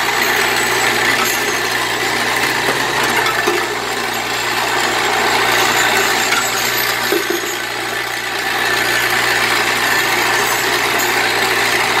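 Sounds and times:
metallic rattle of bowl feeder: 0.0s - 8.1s.

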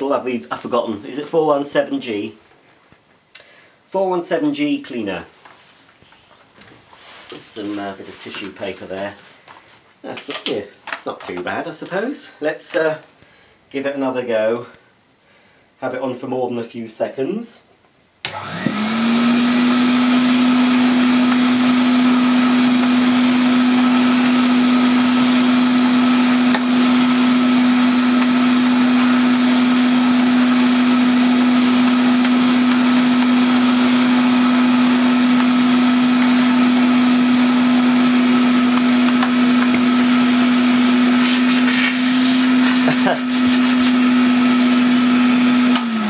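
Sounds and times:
vacuum cleaner motor humming: 18.3s - 46.0s.

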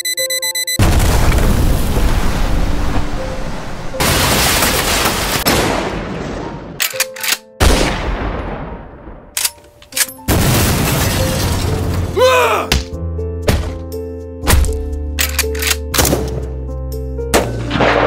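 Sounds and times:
explosion-like crashes: 0.8s - 3.2s.

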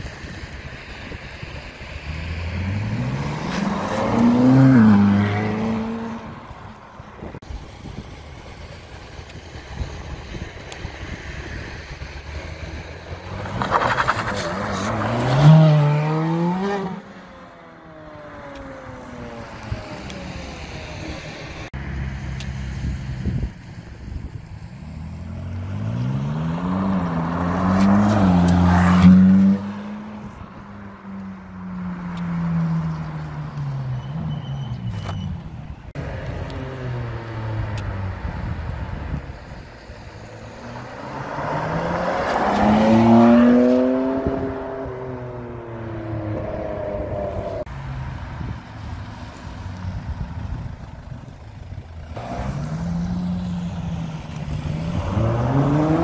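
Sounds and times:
sports cars accelerating past: 2.3s - 6.6s, 13.2s - 19.4s, 25.0s - 34.4s, 40.3s - 48.0s, 52.2s - 56.0s.

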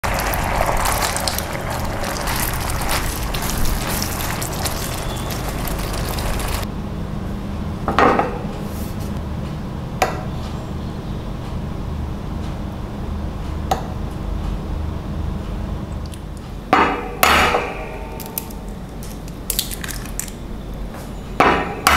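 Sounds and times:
sauce sizzling in a frying pan: 0.0s - 6.6s.

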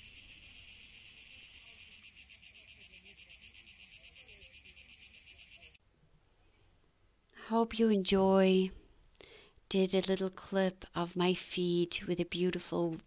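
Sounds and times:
cicadas pulsing chorus: 0.0s - 5.8s.

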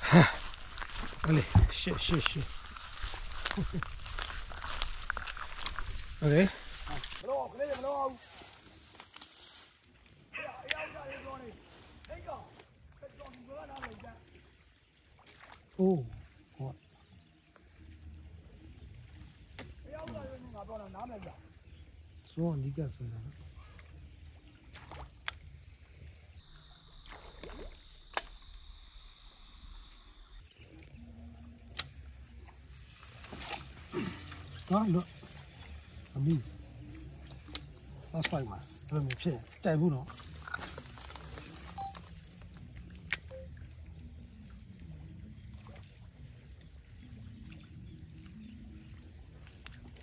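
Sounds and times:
insects singing: 0.0s - 14.2s, 33.3s - 45.4s
faint water noise: 0.0s - 50.0s.

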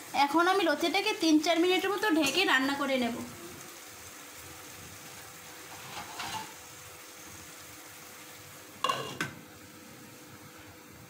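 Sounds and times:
food sizzling in pan: 0.0s - 11.0s
glass lid knocking on pan: 8.8s - 9.4s.

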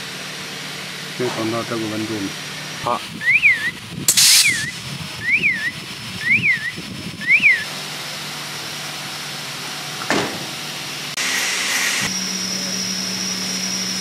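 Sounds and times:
electronic beeper chirps: 3.2s - 7.7s
burst of hiss: 4.1s - 4.9s.

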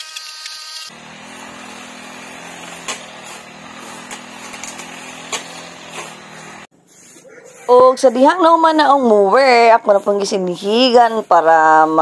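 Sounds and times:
brush cutter engine cutting grass: 0.0s - 6.7s.

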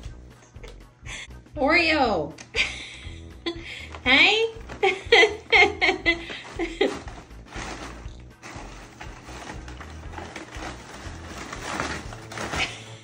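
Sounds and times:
paper rustling and crinkling: 4.5s - 13.0s.

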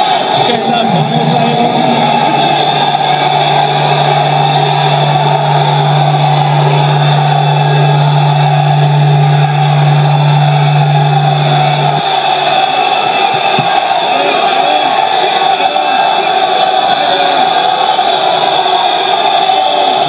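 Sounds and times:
crowd of people shouting: 0.0s - 20.0s
steady low hum: 1.8s - 12.6s.

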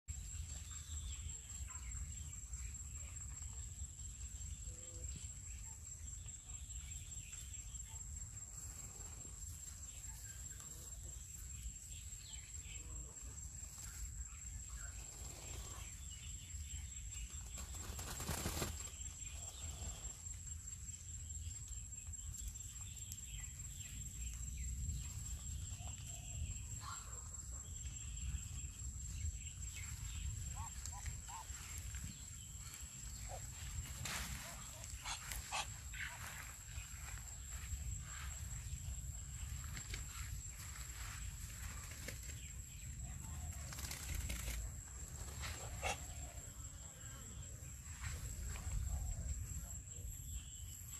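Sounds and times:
ducks ruffling wet feathers: 30.4s - 37.3s.

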